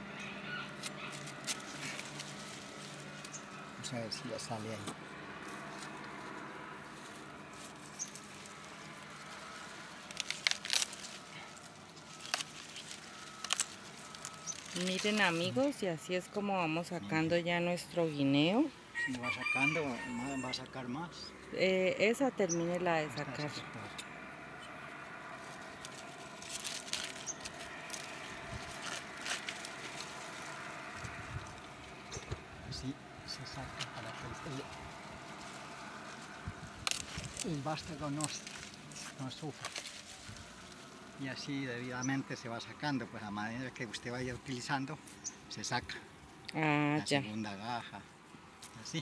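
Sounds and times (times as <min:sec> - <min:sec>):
banana stalk snapping: 0:00.8 - 0:02.4, 0:09.4 - 0:14.8, 0:25.7 - 0:32.4, 0:36.7 - 0:37.6, 0:38.2 - 0:40.8.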